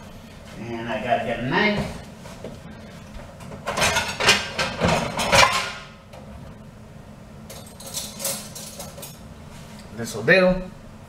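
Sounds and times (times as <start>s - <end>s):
cutlery and dishes clinking: 7.5s - 9.2s.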